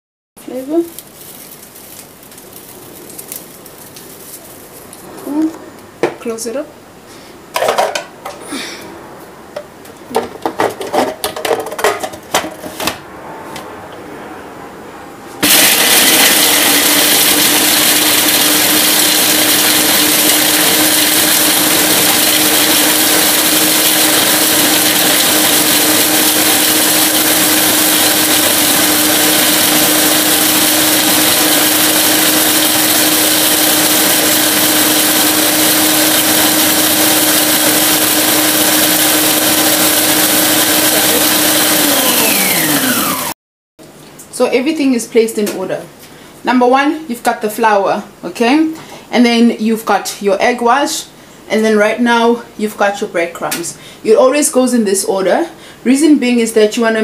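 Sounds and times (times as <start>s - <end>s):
food processor motor humming: 15.4s - 43.4s.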